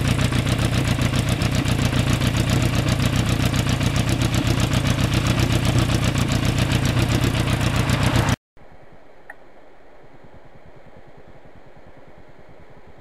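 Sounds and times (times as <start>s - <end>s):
motorcycle engine idling: 0.0s - 8.4s.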